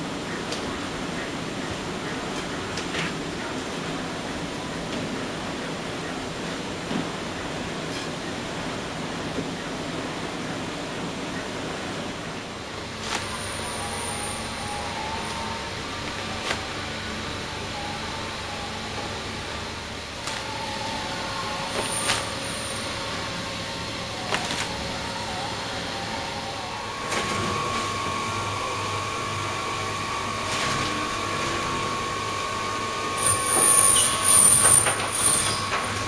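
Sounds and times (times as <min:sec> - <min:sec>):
conveyor machinery humming: 0:00.0 - 0:36.0
high-pitched squealing and clatter: 0:20.2 - 0:26.9, 0:33.1 - 0:36.0.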